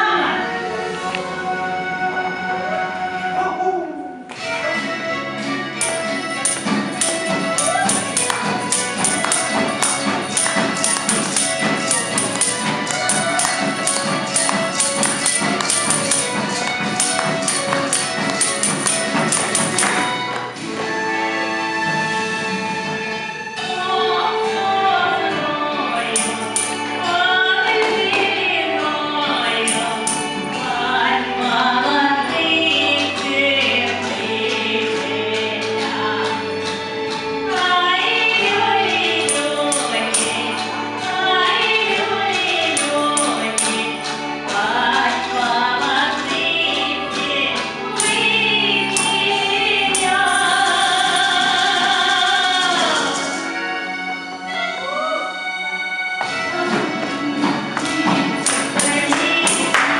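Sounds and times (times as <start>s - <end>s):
woman singing into microphone: 0.0s - 1.5s, 23.6s - 53.7s, 56.7s - 59.9s
amplified backing music: 0.0s - 59.9s.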